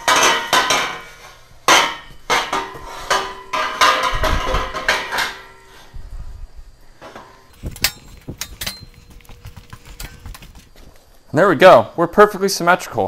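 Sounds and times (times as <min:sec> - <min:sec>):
metal frame clanking: 0:07.5 - 0:10.8
dull thuds: 0:07.5 - 0:11.0.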